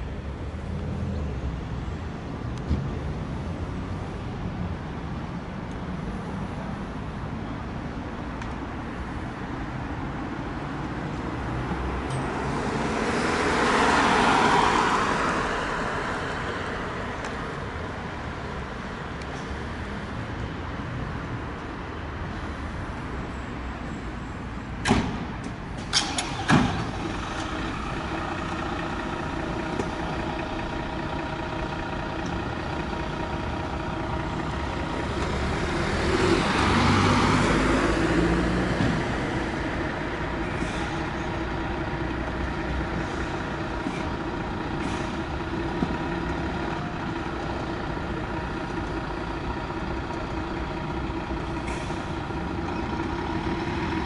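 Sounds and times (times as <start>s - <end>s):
diesel engine idling: 25.6s - 54.0s.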